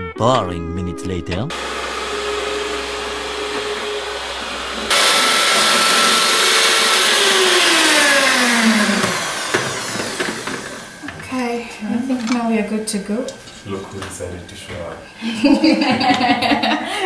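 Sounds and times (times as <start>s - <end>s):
stand mixer motor whine: 1.5s - 11.2s.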